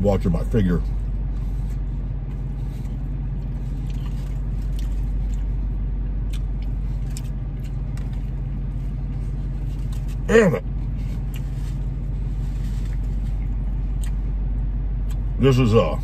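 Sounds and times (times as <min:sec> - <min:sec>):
car engine idling: 0:00.0 - 0:16.0
chewing clicks: 0:06.2 - 0:08.1, 0:14.0 - 0:14.2.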